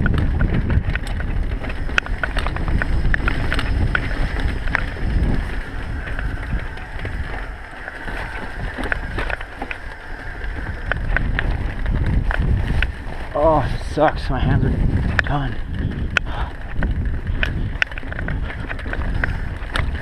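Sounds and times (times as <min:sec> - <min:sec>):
bike clicks and rattles: 0:00.0 - 0:20.0
bike tyres rumbling on trail: 0:00.0 - 0:20.0.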